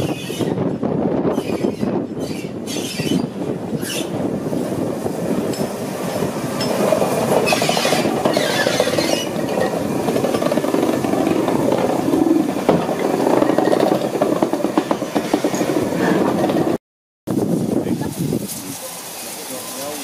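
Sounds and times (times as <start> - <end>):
high squeal: 1.3 - 4.2, 7.4 - 9.9
steam locomotive wheels clattering: 1.4 - 16.8.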